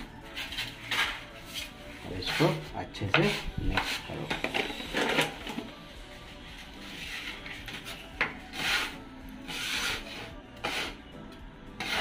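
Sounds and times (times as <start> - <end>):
putty knives scraping on plywood: 7.0 - 11.0, 11.8 - 12.0.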